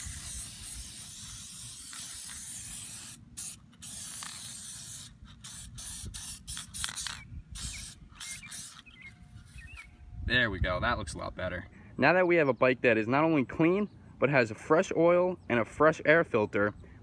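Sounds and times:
aerosol spray hissing: 0.0 - 8.8.

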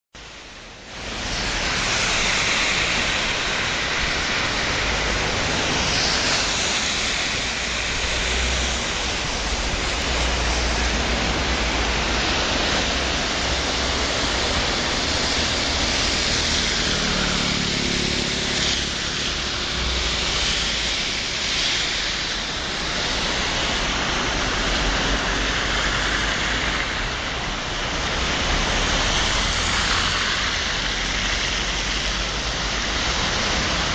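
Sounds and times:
floodwater rushing: 0.2 - 33.9
vehicle passing: 4.1 - 20.9.

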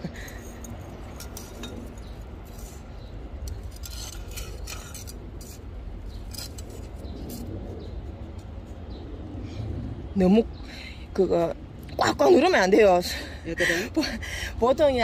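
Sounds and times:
trowel scooping gritty soil: 1.1 - 8.0.

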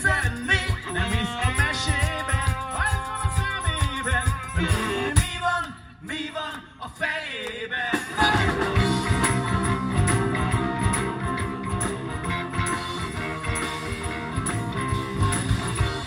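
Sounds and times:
live band with guitars and drums: 0.0 - 5.5, 7.9 - 16.0.

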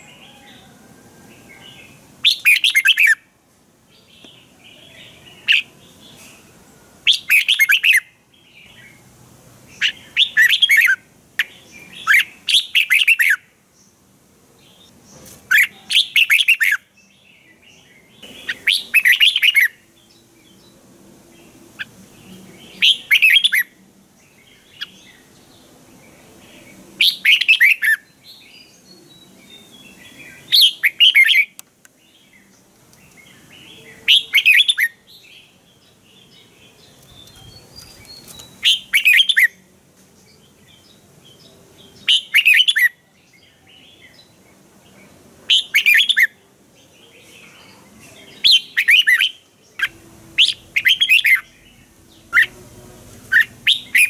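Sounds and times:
bird song phrases: 0.0 - 54.0
faint bird chirps: 21.4 - 31.6.

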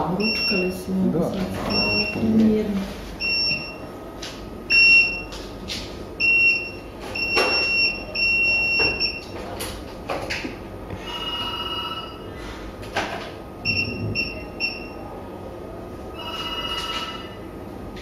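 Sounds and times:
high electronic alarm beeps: 0.2 - 0.8, 1.7 - 2.3, 3.2 - 3.8, 4.7 - 5.3, 6.2 - 9.3, 13.6 - 15.0
trilling alarm tone: 11.0 - 12.3, 16.2 - 17.4.

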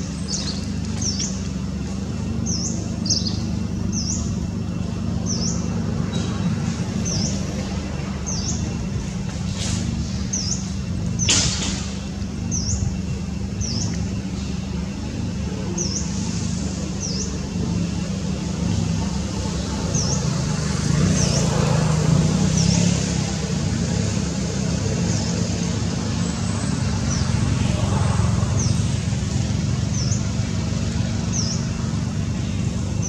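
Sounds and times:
bird chirping: 0.1 - 1.4, 2.4 - 4.4.

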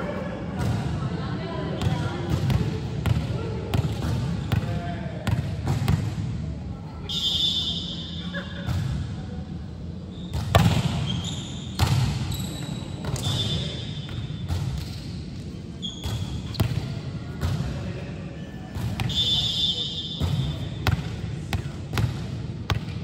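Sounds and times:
volleyball smacks and bounces: 10.3 - 11.1, 11.8 - 12.2
short high squeaks: 11.0 - 14.1.

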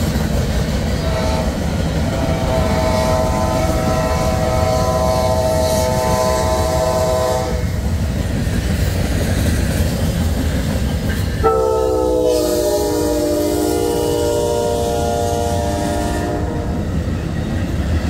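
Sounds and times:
train running rumble: 0.0 - 18.0
locomotive air horn blasts: 1.0 - 7.6, 11.4 - 16.9.

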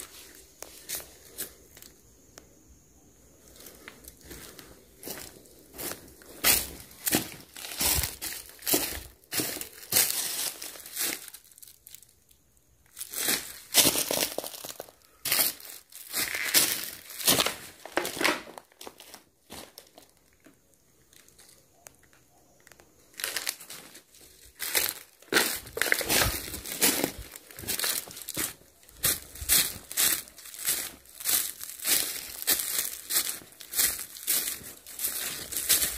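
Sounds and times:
footsteps crunching dry leaves: 0.0 - 1.9, 3.4 - 12.1, 12.9 - 20.2, 23.1 - 35.9.

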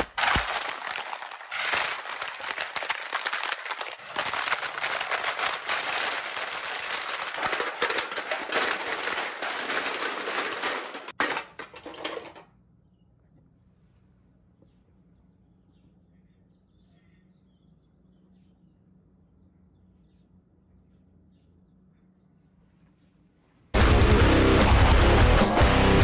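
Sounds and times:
metal cans clattering on concrete: 0.2 - 12.5.

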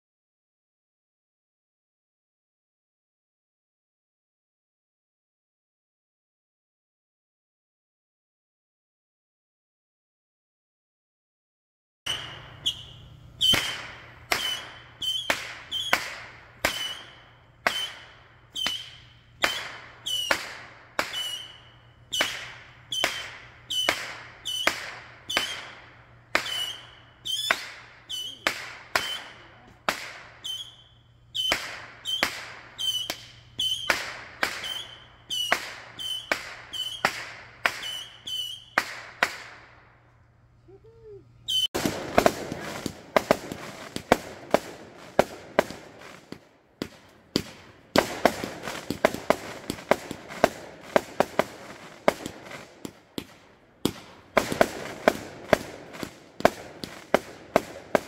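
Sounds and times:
fireworks banging: 12.1 - 40.0, 41.5 - 58.0.

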